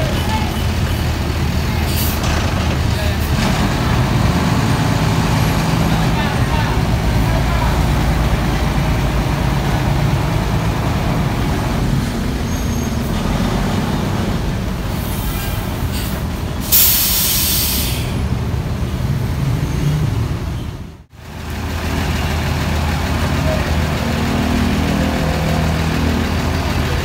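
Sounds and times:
bus diesel engine running: 0.0s - 27.0s
air brakes hissing: 14.9s - 18.2s.

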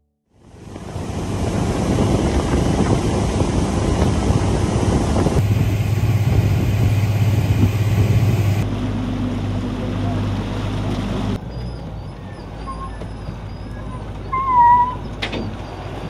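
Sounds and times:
outboard motor running: 0.4s - 8.6s
wind noise on microphone: 0.6s - 8.6s.

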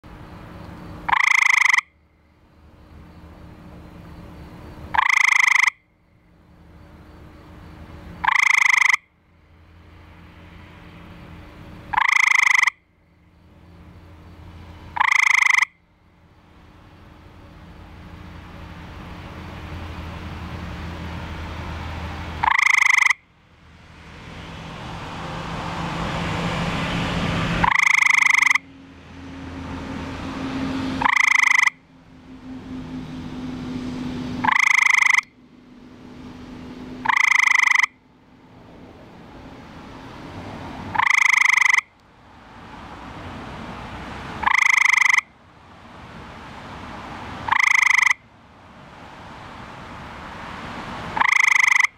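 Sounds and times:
treefrog musical trills: 1.0s - 2.0s, 4.5s - 5.9s, 8.1s - 9.2s, 11.9s - 12.9s, 14.8s - 15.8s, 22.4s - 23.3s, 27.6s - 28.7s, 31.0s - 31.9s, 34.4s - 35.4s, 37.0s - 38.0s, 40.9s - 41.9s, 44.4s - 45.4s, 47.4s - 48.2s, 51.2s - 51.9s.

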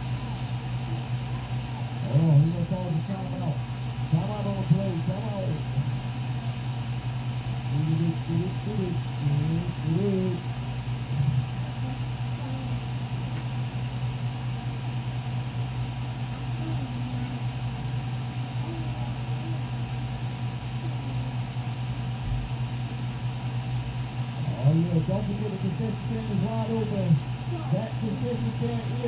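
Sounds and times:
low mechanical hum: 0.0s - 29.0s
faint distant voices: 15.2s - 22.2s.

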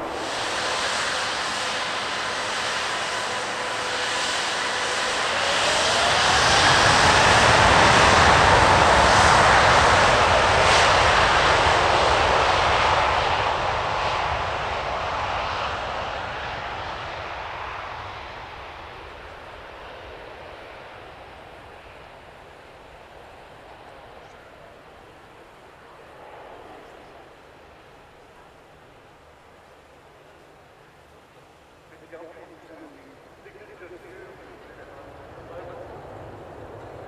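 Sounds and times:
rising engine whine: 0.0s - 27.4s
jet engines of taxiing airliner: 0.0s - 37.0s.

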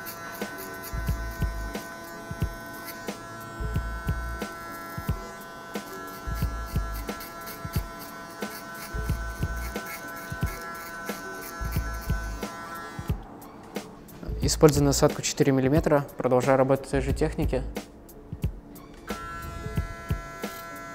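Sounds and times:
electric hair clipper humming: 0.0s - 13.2s, 19.0s - 20.9s
background music with steady beat: 0.0s - 20.9s.

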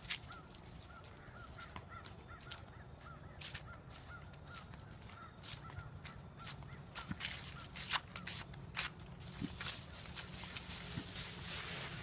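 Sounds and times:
bird calling: 0.2s - 8.4s.

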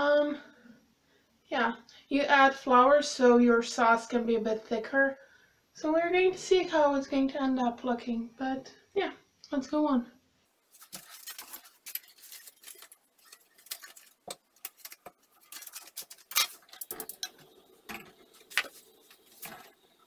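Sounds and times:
pots set down on stove grate: 16.0s - 19.9s.

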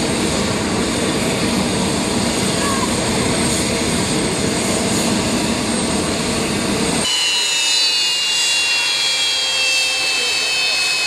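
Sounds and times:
jet engines running: 0.0s - 11.0s
turbine whine sliding down: 4.7s - 11.0s.

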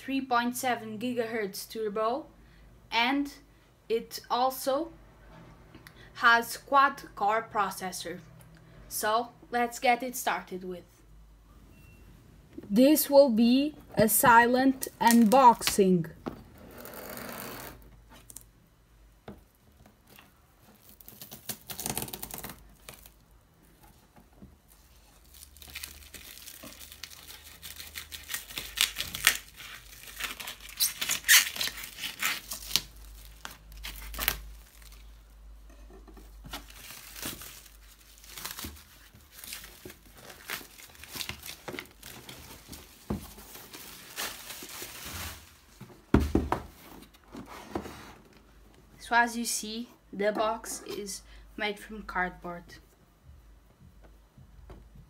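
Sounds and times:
plastic wrap tearing and crinkling: 20.1s - 23.4s, 24.7s - 35.2s, 36.5s - 45.7s.

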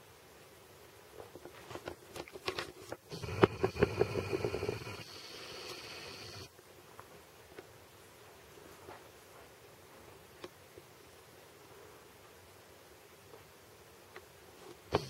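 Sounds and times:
camera zoom motor whirring: 3.1s - 6.5s.

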